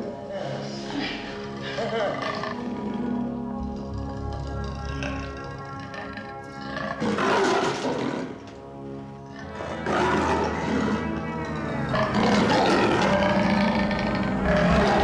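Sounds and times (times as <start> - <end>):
film score music: 0.0 - 15.0
leopard snarling and roaring: 4.3 - 8.4, 9.4 - 15.0.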